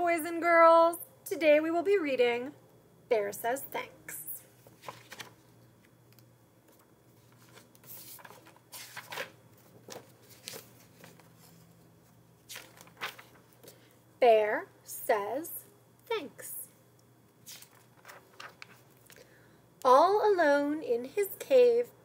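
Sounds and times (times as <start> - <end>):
book pages turning: 4.6 - 5.5, 6.1 - 13.8, 17.4 - 19.2.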